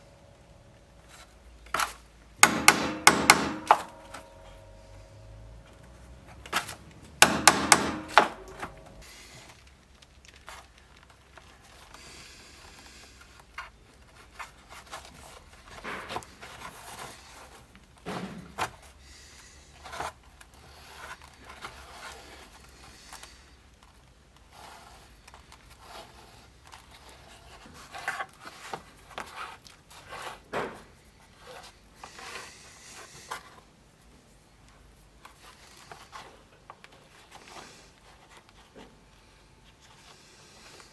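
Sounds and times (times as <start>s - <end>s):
loud knocks: 2.4s - 4.1s, 7.2s - 8.8s
thread scraping through leather: 24.4s - 33.6s.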